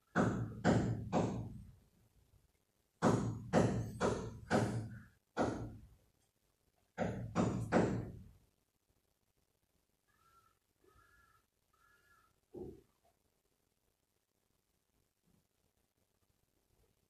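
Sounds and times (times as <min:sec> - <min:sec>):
heavy knocks with ringing tail: 0:03.0 - 0:05.8.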